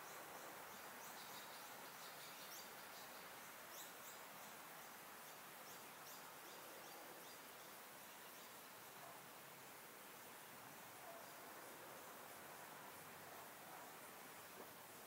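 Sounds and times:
small birds chirping: 0.0 - 9.2
steady hiss: 0.0 - 15.0.

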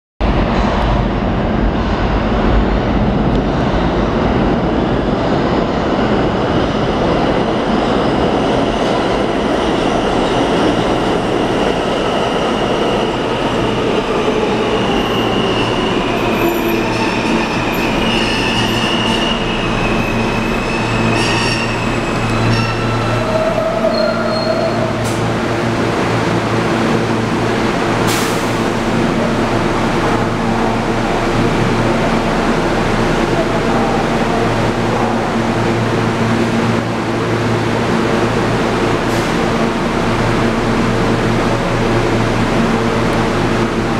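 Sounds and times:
train wheels rumbling on rail: 0.2 - 43.9
high wheel squeal: 14.2 - 25.1.

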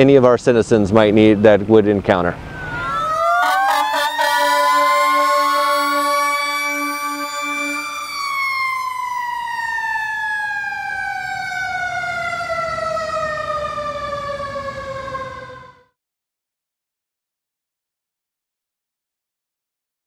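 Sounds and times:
fire truck siren winding down: 2.4 - 16.0.

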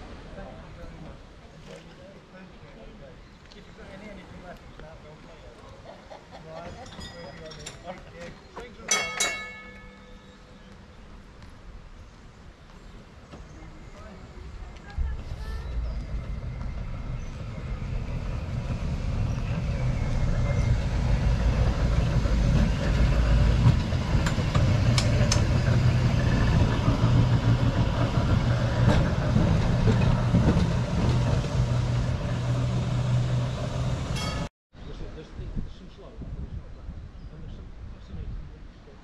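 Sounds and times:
steel wheels rumbling on rails: 14.5 - 34.5
tram motor hum: 14.7 - 34.5.

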